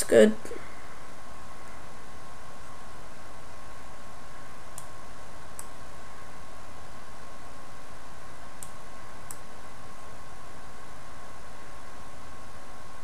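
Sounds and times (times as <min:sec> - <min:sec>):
faint steady whine: 0:00.0 - 0:13.0
recording hiss: 0:00.0 - 0:13.0
computer mouse clicks: 0:04.7 - 0:05.8, 0:08.6 - 0:09.4.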